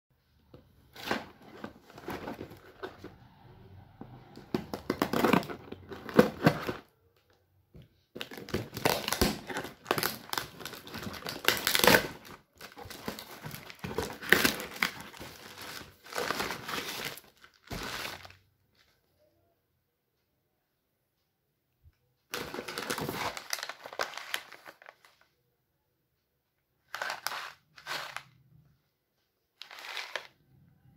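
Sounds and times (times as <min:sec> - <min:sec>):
plastic wrapping rustling: 0:00.9 - 0:03.0, 0:08.2 - 0:18.9, 0:22.3 - 0:25.2, 0:26.9 - 0:28.4, 0:29.6 - 0:30.4.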